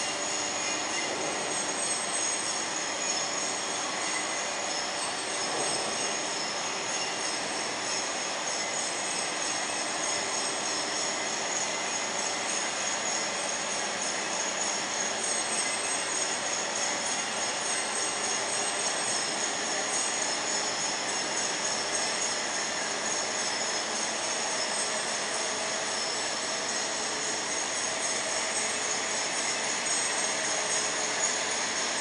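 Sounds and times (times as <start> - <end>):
steel slitting machine running: 0.0 - 32.0.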